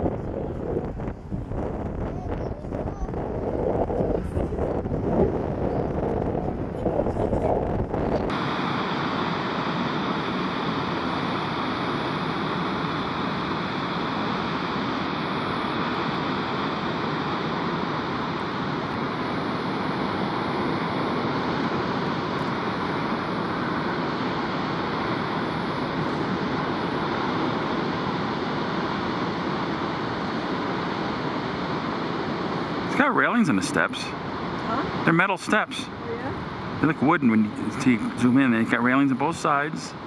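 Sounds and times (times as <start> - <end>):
rushing water roar: 0.0 - 40.0.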